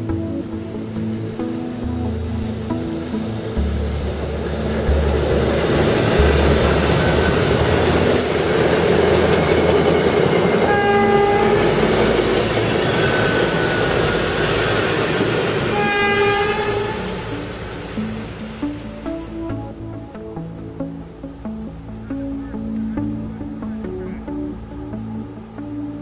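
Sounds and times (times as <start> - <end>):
train wheels rumbling on rail: 2.5 - 19.4
train horn: 10.6 - 17.5.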